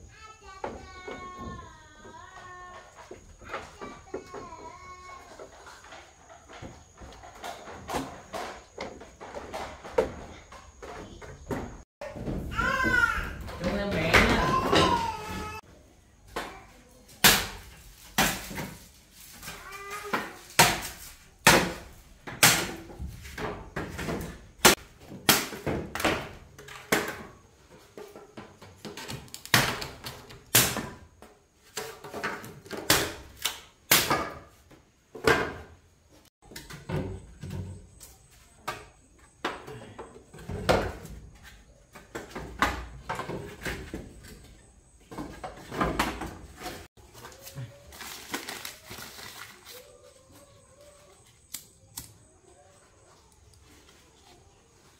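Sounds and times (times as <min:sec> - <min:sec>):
irregular knocks and thuds: 0:00.5 - 0:15.6.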